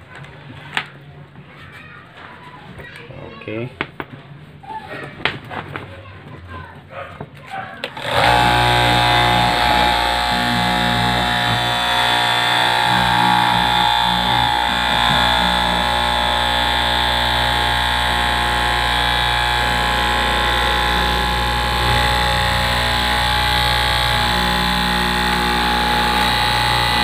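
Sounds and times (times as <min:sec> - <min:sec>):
cloth cutting machine humming: 0:07.8 - 0:27.0.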